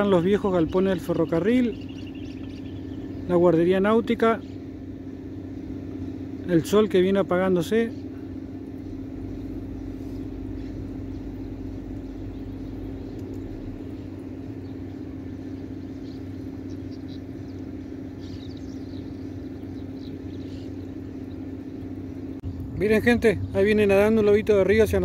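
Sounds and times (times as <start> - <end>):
low motor hum: 0.0 - 25.0
faint bird chirps: 0.1 - 3.6, 7.9 - 23.6.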